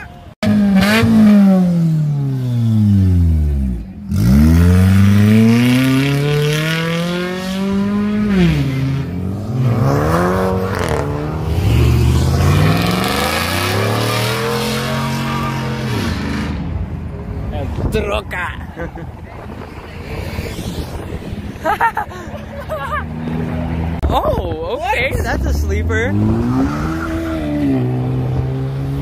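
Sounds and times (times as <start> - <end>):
car engine revving: 0.4 - 17.0, 25.2 - 29.0.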